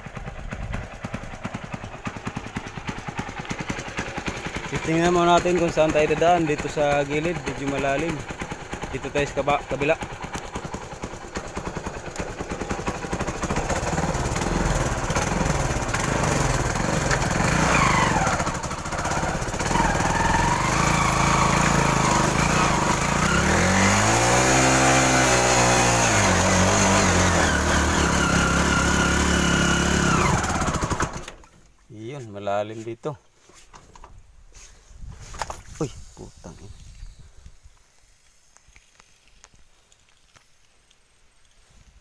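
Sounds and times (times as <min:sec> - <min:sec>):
motorcycle engine revving: 0:00.0 - 0:31.4.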